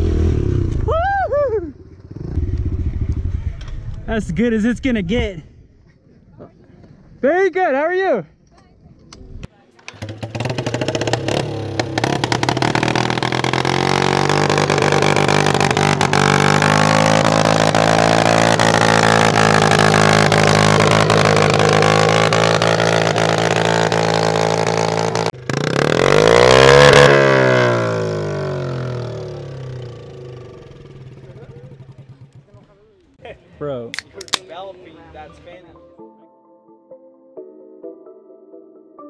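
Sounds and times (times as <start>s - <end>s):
engine revving: 0.0s - 0.9s, 2.0s - 4.1s, 9.9s - 32.4s
small motorcycle engine idling: 9.9s - 16.2s, 27.7s - 33.0s.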